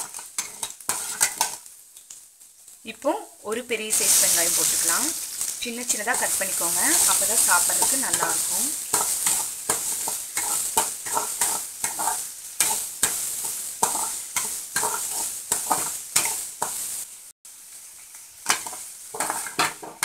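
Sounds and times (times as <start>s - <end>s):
metal spatula scraping pan: 0.0s - 1.6s, 4.0s - 16.8s, 18.4s - 20.0s
onions sizzling in oil: 0.0s - 20.0s.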